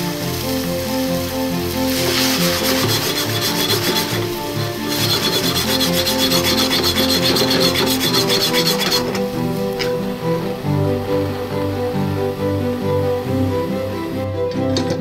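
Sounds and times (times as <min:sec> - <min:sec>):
chopsticks scraping a frying pan: 0:01.9 - 0:10.6.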